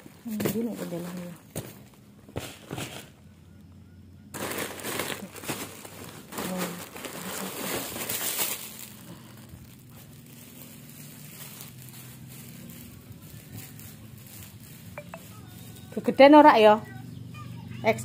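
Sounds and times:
plastic bags crinkling: 0:04.3 - 0:16.7.

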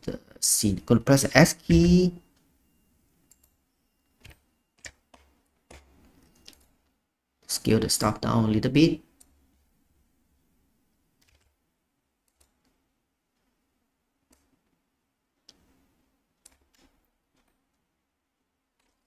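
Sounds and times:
mouse and keyboard clicks: 0:04.2 - 0:06.8, 0:11.2 - 0:11.5, 0:16.4 - 0:17.8, 0:18.8 - 0:19.0.

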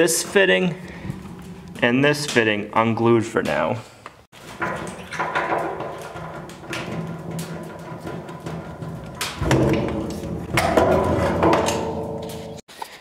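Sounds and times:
plastic pipe rubbing and scraping: 0:04.4 - 0:13.0
sharp knocks: 0:04.6 - 0:12.6.

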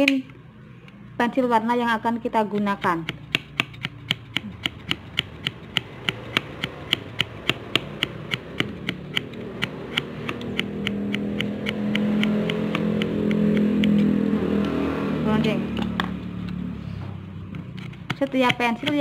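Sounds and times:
vehicle engine drone: 0:04.4 - 0:18.1.

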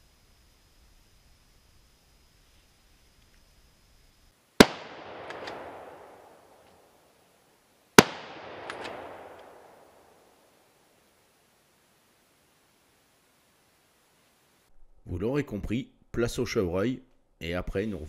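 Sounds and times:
rifle shots with echo: 0:04.6 - 0:06.6, 0:08.0 - 0:10.2.

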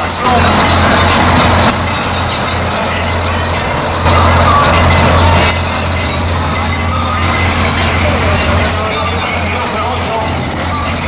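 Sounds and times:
diesel truck engine running: 0:00.0 - 0:11.0.

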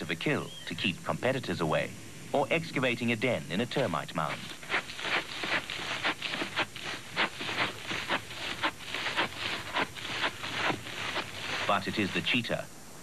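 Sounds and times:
animal paws scraping dry earth: 0:03.7 - 0:12.3.

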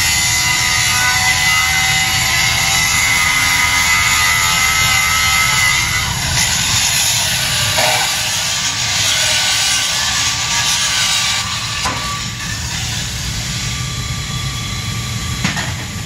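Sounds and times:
angle grinder grinding metal: 0:00.0 - 0:14.9.

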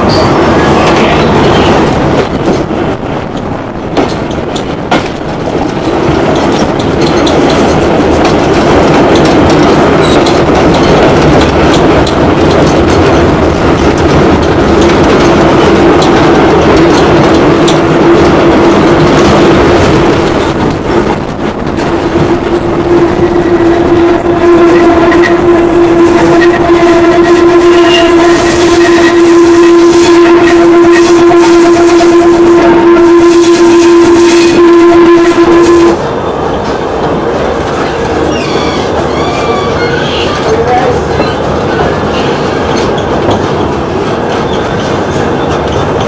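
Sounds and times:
train wheels clattering on rails: 0:00.0 - 0:24.0, 0:36.0 - 0:46.0.

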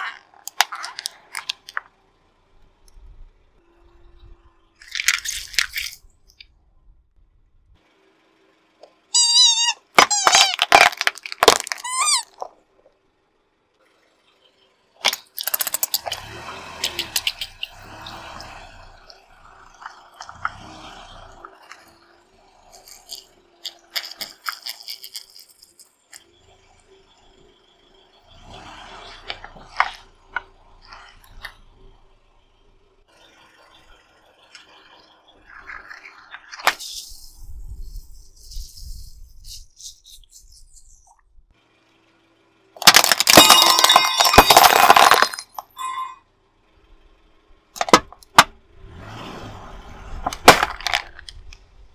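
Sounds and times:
plastic bottles crunching under tyre: 0:04.8 - 0:06.0, 0:09.8 - 0:12.5, 0:42.8 - 0:45.7, 0:50.2 - 0:51.4
loud wavering squeal: 0:45.7 - 0:46.3.

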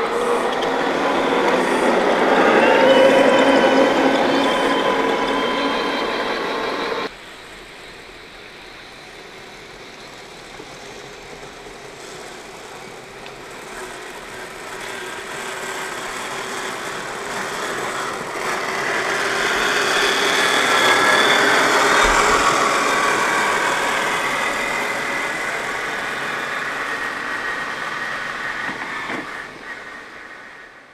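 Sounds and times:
rc truck motor whining: 0:14.0 - 0:30.5.

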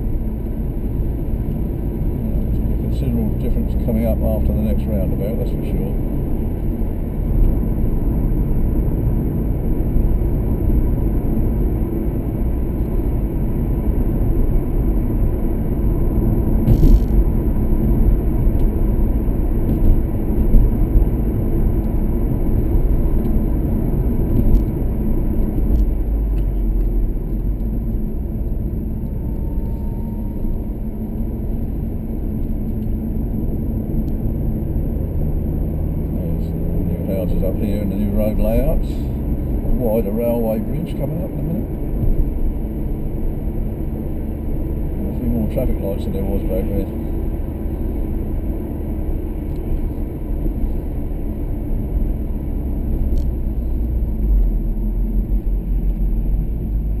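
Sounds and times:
engine and tyre rumble: 0:00.0 - 0:57.0
car bumps: 0:16.6 - 0:17.4.

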